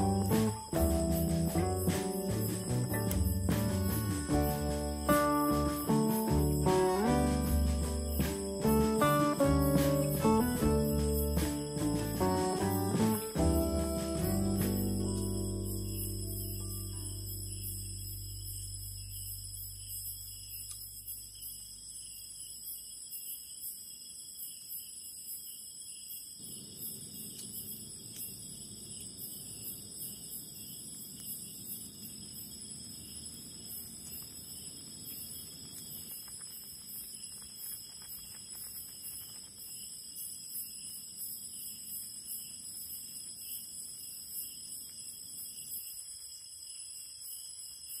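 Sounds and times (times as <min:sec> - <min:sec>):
night insects chirring: 0:00.0 - 0:48.0.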